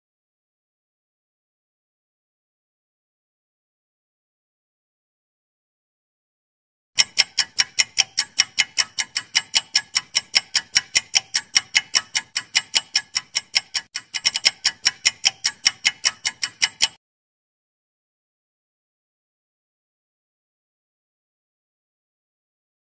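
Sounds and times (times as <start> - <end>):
clock ticking: 7.0 - 17.0.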